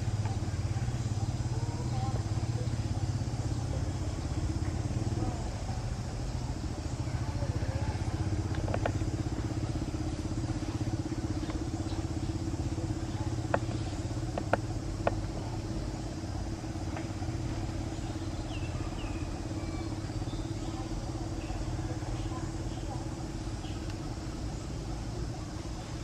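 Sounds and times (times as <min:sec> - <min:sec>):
motor humming: 0:00.0 - 0:26.0.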